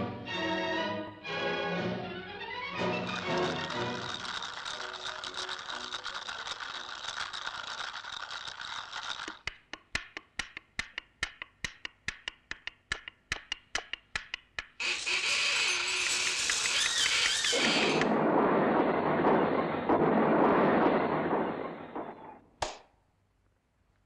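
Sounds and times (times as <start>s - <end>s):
rattling scratchy noise: 3.0s - 9.4s
sharp bicycle ticks: 4.0s - 14.8s.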